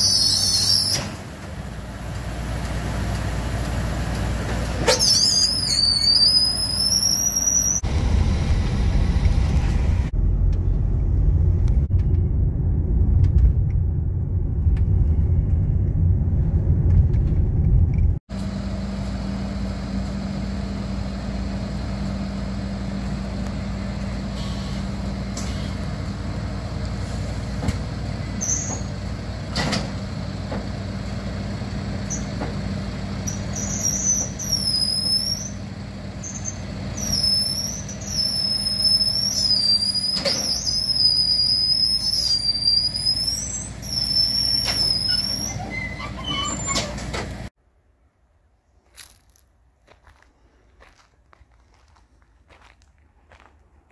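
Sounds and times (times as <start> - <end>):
truck engine idling: 0.0 - 12.0, 18.4 - 47.5
road rumble inside car: 6.3 - 31.2.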